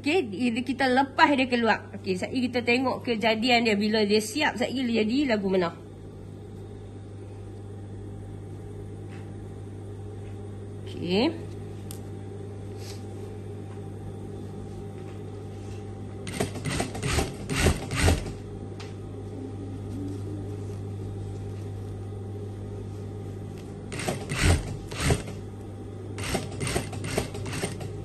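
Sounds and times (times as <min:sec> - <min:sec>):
sewing machine motor humming: 0:16.2 - 0:18.4, 0:23.9 - 0:25.5, 0:26.2 - 0:28.0
sewing machine clicking and knocking: 0:16.3 - 0:18.4, 0:23.9 - 0:25.4, 0:26.2 - 0:28.0.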